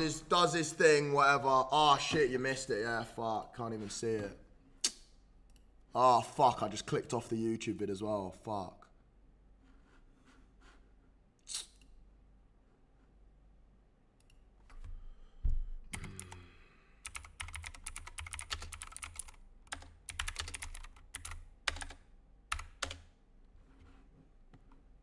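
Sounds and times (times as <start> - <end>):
keyboard typing: 17.0 - 23.1.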